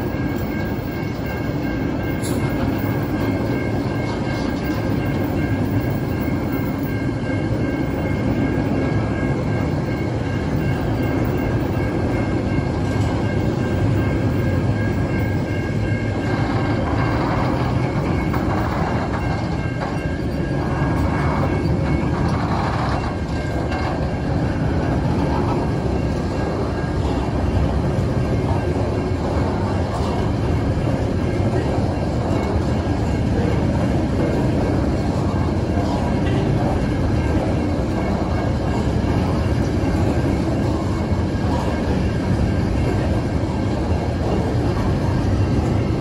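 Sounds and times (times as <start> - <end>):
freight train wheels rumbling: 0.0 - 46.0
train wagons rattling: 0.0 - 46.0.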